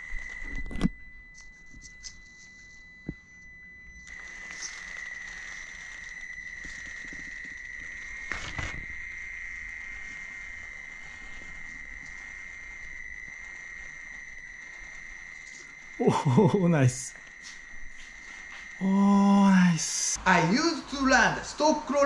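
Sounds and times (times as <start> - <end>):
toy car motor whining: 4.0 - 16.0.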